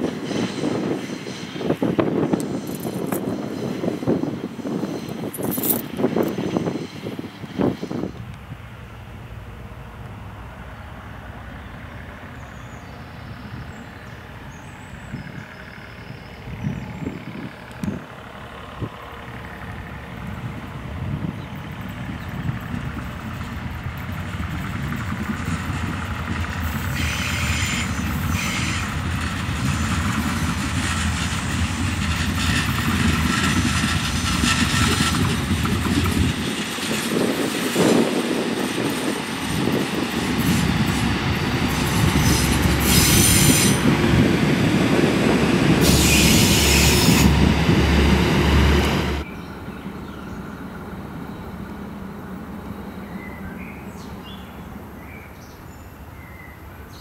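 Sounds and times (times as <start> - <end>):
diesel train passing: 0.0 - 57.0
high-pitched wheel squeal: 45.8 - 47.3.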